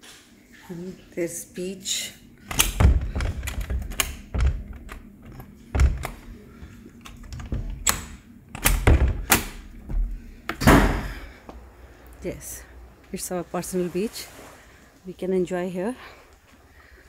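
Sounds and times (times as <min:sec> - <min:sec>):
footsteps on wooden decking: 0:08.9 - 0:10.3.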